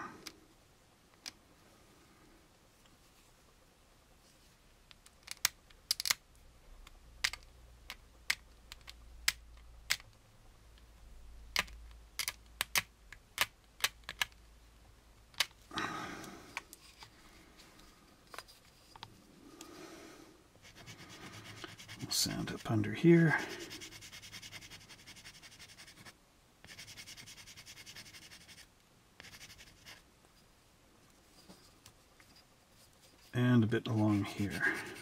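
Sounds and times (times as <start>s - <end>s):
sanding stick rubbing: 20.6s - 22.7s, 23.4s - 26.1s, 34.0s - 35.0s.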